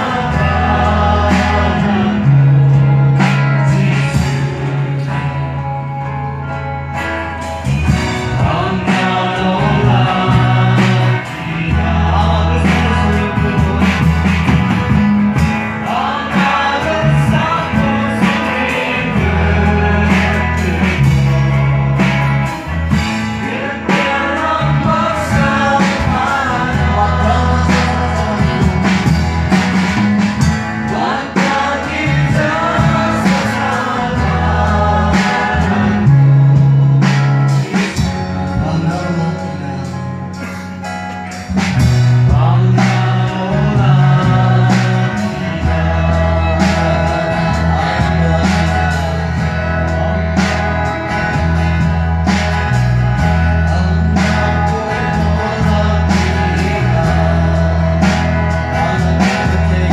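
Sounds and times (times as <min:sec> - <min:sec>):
drums: 0:00.0 - 0:59.9
guitar: 0:00.0 - 0:59.9
held bass notes: 0:00.0 - 0:59.9
voices singing worship song: 0:00.0 - 0:59.9.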